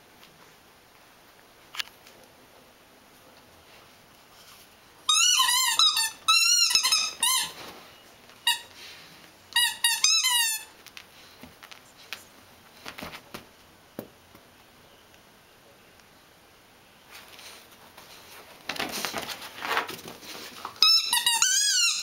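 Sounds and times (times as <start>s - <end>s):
squeaky toy squeaking: 5.1s - 7.6s, 9.6s - 10.7s, 20.8s - 22.0s.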